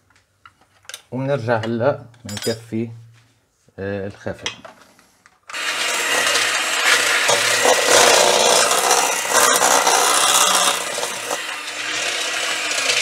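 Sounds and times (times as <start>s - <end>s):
beaters scraping metal bowl: 5.5s - 13.0s
electric hand mixer motor hum: 5.5s - 13.0s.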